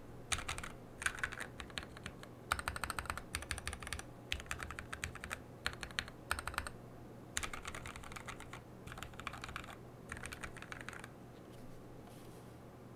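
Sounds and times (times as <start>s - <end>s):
mechanical keyboard typing: 0.3s - 6.8s, 7.4s - 11.1s.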